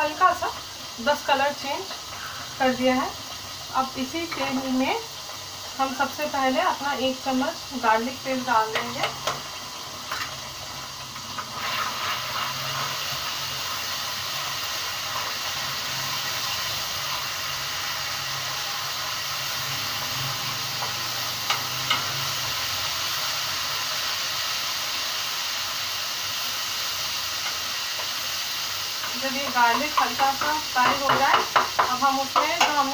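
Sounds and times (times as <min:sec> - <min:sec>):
garlic sizzling in hot oil: 0:00.0 - 0:32.9
spoon tapping pan: 0:04.2 - 0:04.6, 0:08.6 - 0:09.5, 0:20.8 - 0:22.2, 0:29.0 - 0:32.9.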